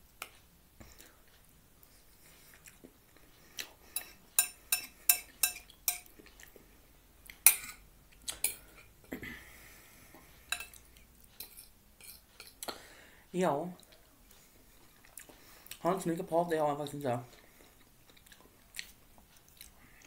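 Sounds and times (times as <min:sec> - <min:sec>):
metal fork clinking on plate: 0:04.0 - 0:06.1, 0:07.5 - 0:07.8, 0:10.5 - 0:10.8, 0:11.4 - 0:12.6.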